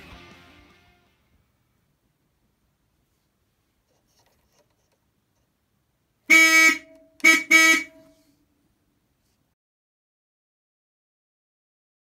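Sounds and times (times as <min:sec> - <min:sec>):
car horn toots: 0:06.3 - 0:08.1.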